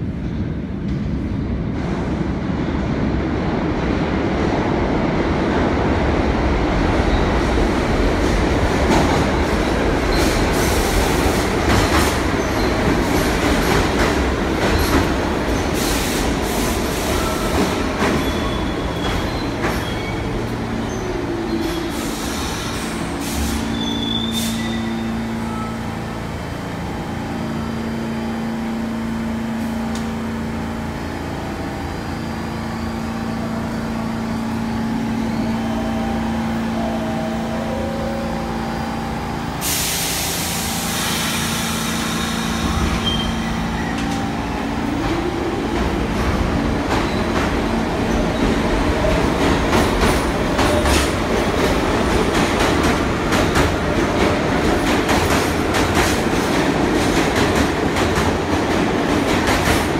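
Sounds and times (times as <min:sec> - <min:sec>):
subway train wheels rumbling: 0:00.0 - 0:59.9
wheel squeal: 0:42.0 - 0:44.1.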